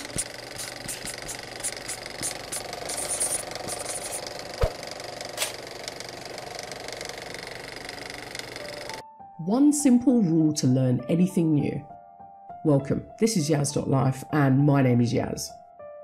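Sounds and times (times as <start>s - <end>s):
marker scribbling on board: 0.0s - 4.3s.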